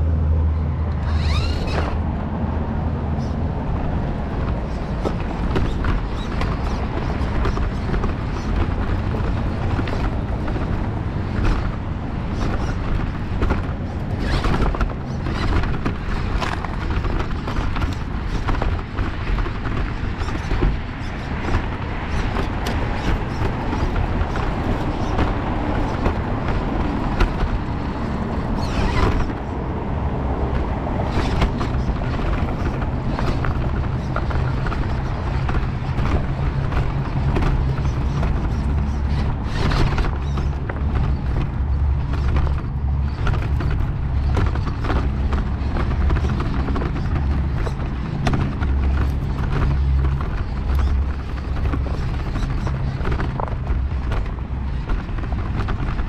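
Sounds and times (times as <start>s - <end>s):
low drivetrain rumble: 0.0s - 56.0s.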